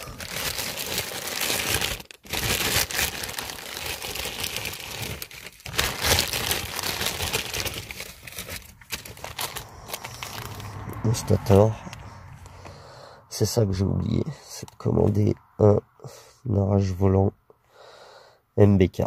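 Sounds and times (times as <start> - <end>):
plastic packaging crinkling: 0.0 - 10.8.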